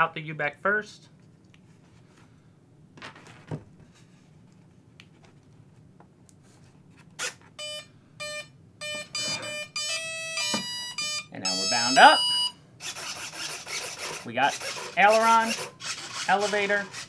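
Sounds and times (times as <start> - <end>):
short electronic beeps: 7.6 - 12.6.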